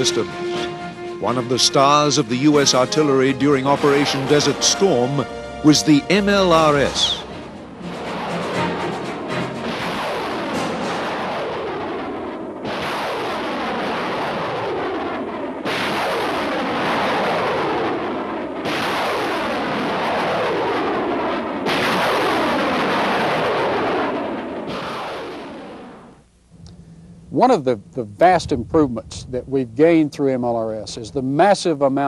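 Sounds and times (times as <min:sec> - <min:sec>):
rockets launching: 0:00.0 - 0:26.2.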